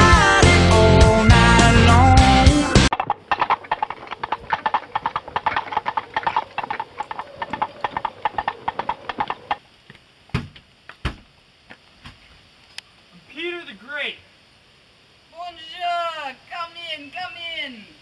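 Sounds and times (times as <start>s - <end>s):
heavy thumps: 2.9s - 9.6s.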